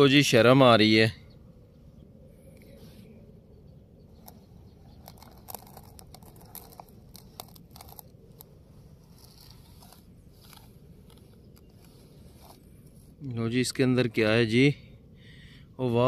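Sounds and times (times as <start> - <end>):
toy wheels crunching through sand: 4.9 - 13.2.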